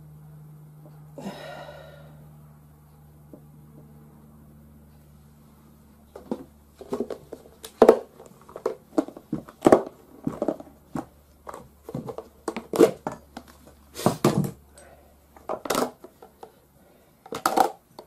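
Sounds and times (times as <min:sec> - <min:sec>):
faint steady hum: 0:00.0 - 0:18.0
plastic box clacks and knocks: 0:06.1 - 0:14.6, 0:17.3 - 0:17.8.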